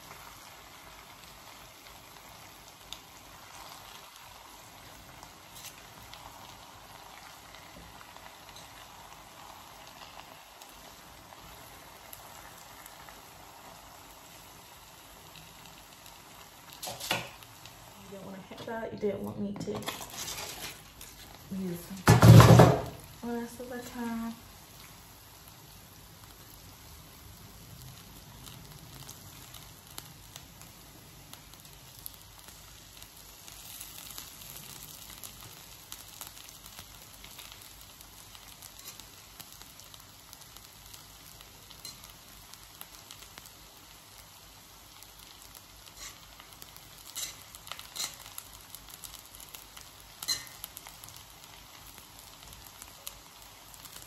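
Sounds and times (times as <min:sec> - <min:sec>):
food sizzling in a wok: 0:00.0 - 0:54.0
utensil scraping a pan: 0:19.6 - 0:21.4, 0:45.9 - 0:46.3, 0:47.1 - 0:48.3.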